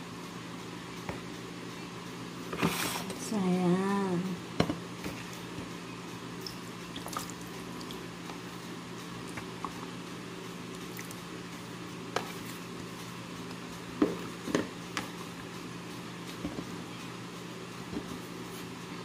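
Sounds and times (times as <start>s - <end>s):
steady low hum: 0.0s - 19.0s
liquid splashing and dripping: 6.4s - 8.1s.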